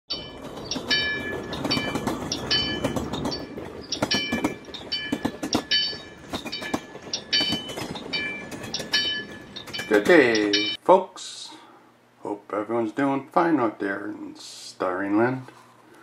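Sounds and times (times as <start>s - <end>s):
crossing signal bell clanging: 0.1s - 10.8s.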